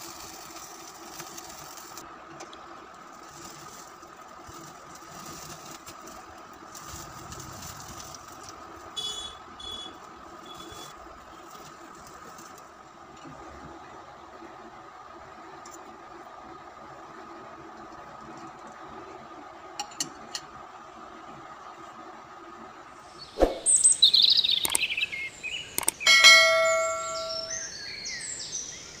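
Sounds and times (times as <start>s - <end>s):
twittering chirp: 23.1s - 28.9s
short rising tones: 23.3s - 24.0s
sharp clicks: 24.5s - 24.9s, 25.7s - 26.0s
bell ding: 26.1s - 27.6s.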